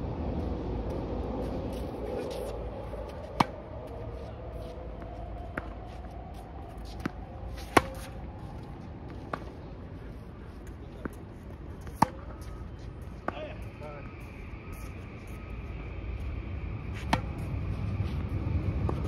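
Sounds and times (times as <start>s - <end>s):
racket hitting tennis ball: 3.2s - 3.6s, 6.8s - 8.2s, 11.8s - 12.5s, 16.9s - 17.5s
tennis ball bouncing: 3.2s - 3.6s, 6.8s - 8.2s, 9.1s - 9.6s, 11.8s - 12.5s, 17.0s - 17.5s.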